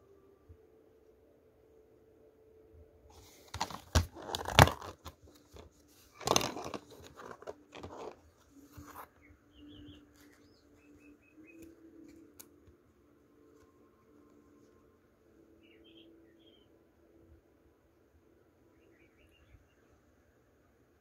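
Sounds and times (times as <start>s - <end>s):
plastic case clicks and snaps: 3.5s - 5.6s, 6.2s - 8.2s.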